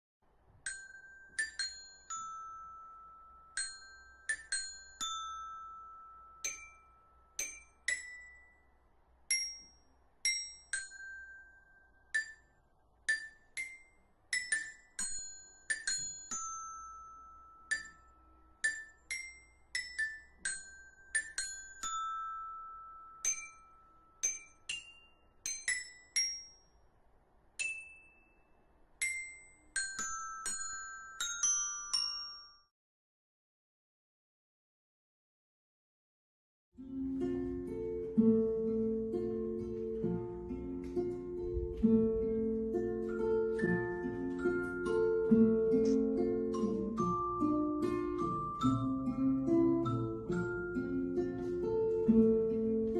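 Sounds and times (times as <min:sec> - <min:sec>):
mallet percussion melody: 0:36.8 - 0:52.9.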